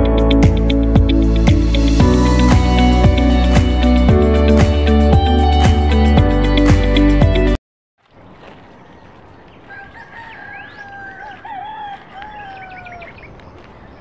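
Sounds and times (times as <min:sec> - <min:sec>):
small birds chirping: 0:08.0 - 0:14.0
rooster crowing: 0:09.6 - 0:13.3.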